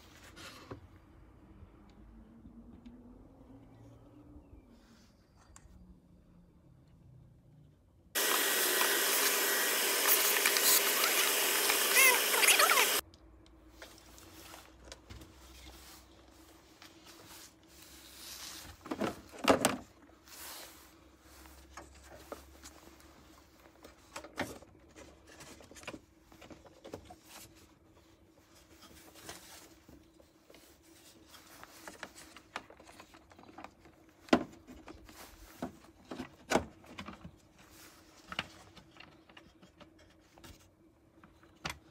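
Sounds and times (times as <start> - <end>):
vacuum cleaner running: 8.2 - 13.0.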